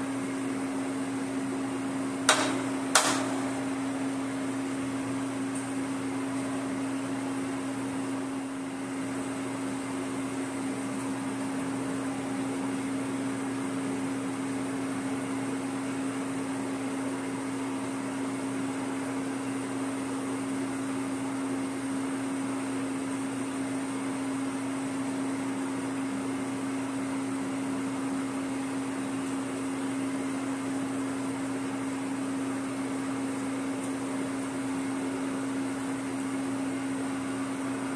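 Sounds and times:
machine motor humming: 0:01.8 - 0:09.2.

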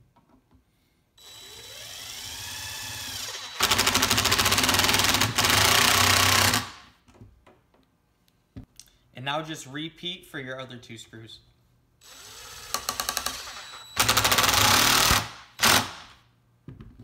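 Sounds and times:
impact driver whine: 0:01.2 - 0:06.8, 0:12.0 - 0:16.1.

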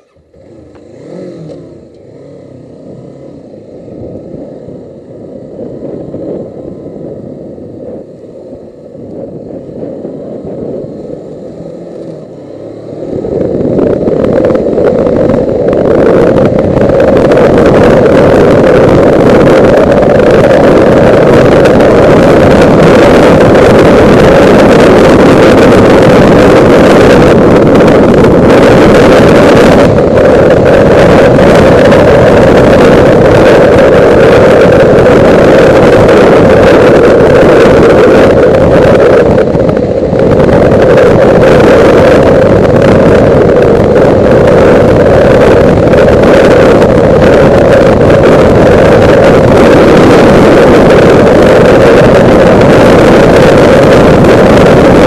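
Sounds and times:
motorcycle engine revving: 0:00.0 - 0:55.0
wind rush on microphone: 0:00.0 - 0:55.0.

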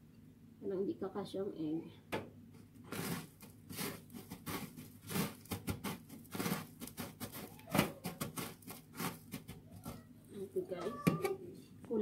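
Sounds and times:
breadcrumbs rustling and crunching: 0:02.6 - 0:10.7.

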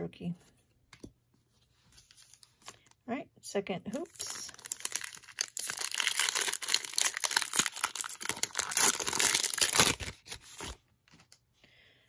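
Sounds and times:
wrapper tearing and crinkling: 0:04.0 - 0:10.8.

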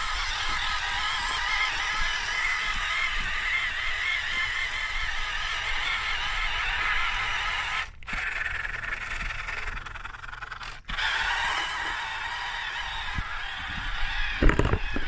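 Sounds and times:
electric motor whine: 0:00.0 - 0:15.0
plastic tracks scraping and rattling: 0:12.7 - 0:15.0.

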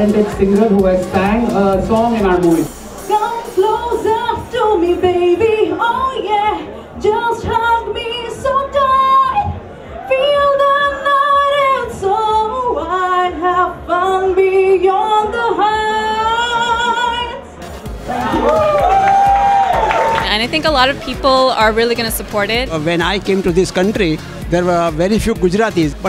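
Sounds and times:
woman singing unaccompanied: 0:03.1 - 0:17.4.

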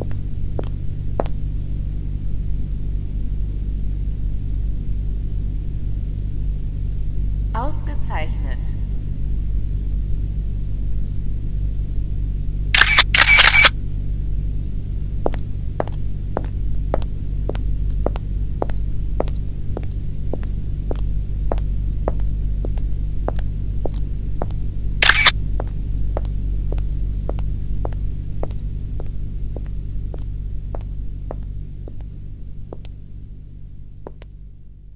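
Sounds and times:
steady low drone: 0:00.0 - 0:34.9
camera shutter clicks: 0:12.8 - 0:13.7, 0:25.0 - 0:25.3.

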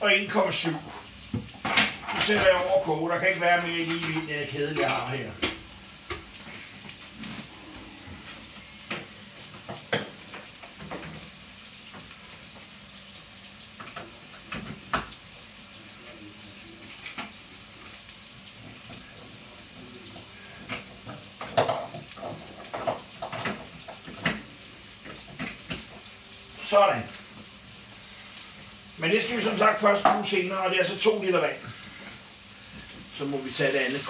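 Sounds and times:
food sizzling in a pot: 0:00.0 - 0:34.0
dishes and utensils clinking: 0:01.5 - 0:06.3, 0:16.8 - 0:18.0, 0:20.1 - 0:24.5.

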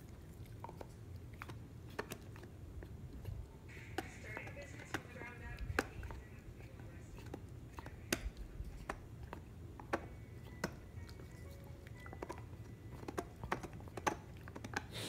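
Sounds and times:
dog teeth gnawing on horn: 0:00.0 - 0:15.0.

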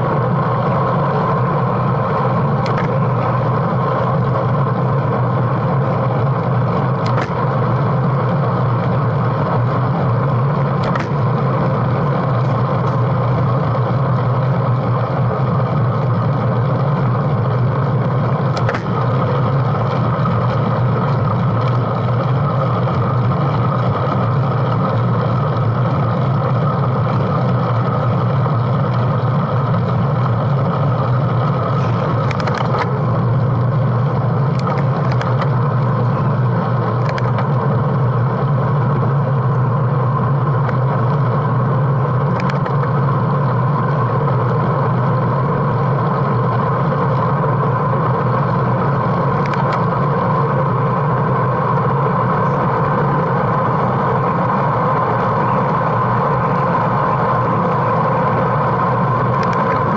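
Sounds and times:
road noise: 0:00.0 - 0:59.9
bicycle clicks and rattles: 0:00.2 - 0:59.9.

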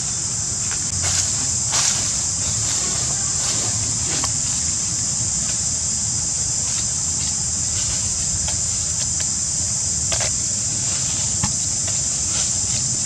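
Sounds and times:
insects droning: 0:00.0 - 0:13.0.

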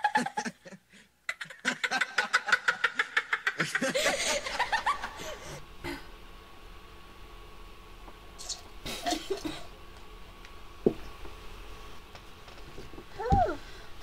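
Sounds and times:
person laughing hard: 0:00.0 - 0:05.6.

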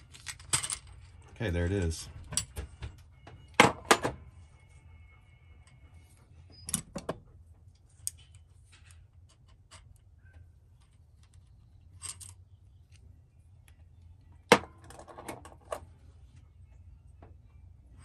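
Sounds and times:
metal clinks and knocks: 0:00.0 - 0:01.4, 0:02.2 - 0:04.3.

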